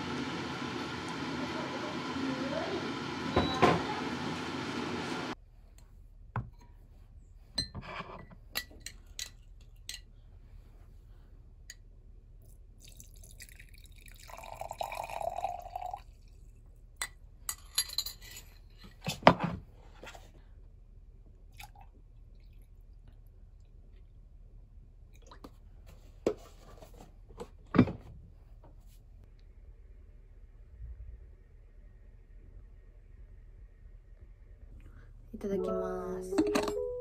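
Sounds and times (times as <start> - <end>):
liquid pouring into a glass: 12.8 - 16.4.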